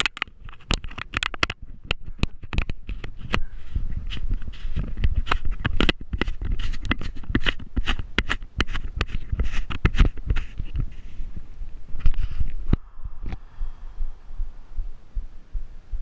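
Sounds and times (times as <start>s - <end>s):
fingers rubbing and tapping plastic: 0.0s - 11.0s
low rumble: 11.0s - 16.0s.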